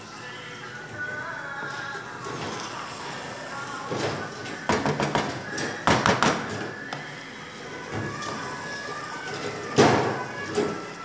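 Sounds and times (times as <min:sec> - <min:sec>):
sharp knocks and clatters: 0:04.7 - 0:06.6.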